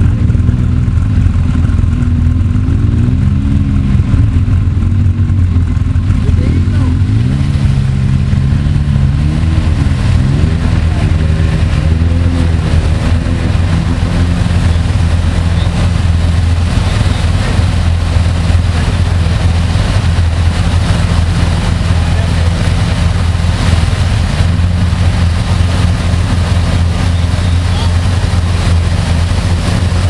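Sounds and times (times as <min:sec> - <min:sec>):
engine revving: 0:00.0 - 0:30.0
water splashing around wheels: 0:00.0 - 0:30.0.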